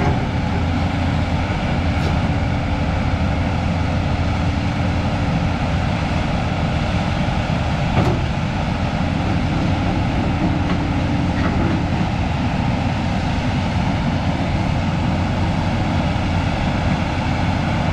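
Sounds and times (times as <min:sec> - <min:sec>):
excavator diesel engine under load: 0:00.0 - 0:17.9.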